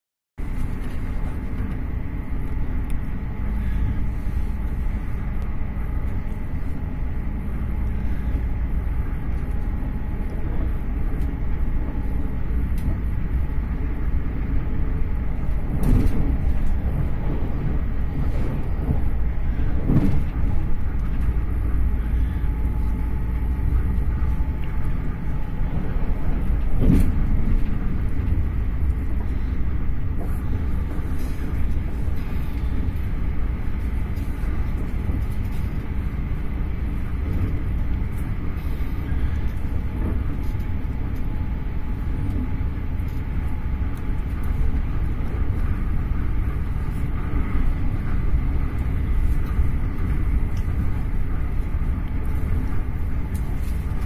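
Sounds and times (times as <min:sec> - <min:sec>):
train wheels rumbling on track: 0:00.4 - 0:54.0
train knocks: 0:15.5 - 0:21.9.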